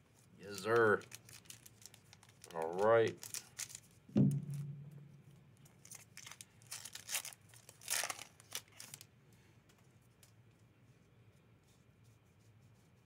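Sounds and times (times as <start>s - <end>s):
foil wrapper tearing: 0.4s - 4.0s, 5.8s - 9.1s.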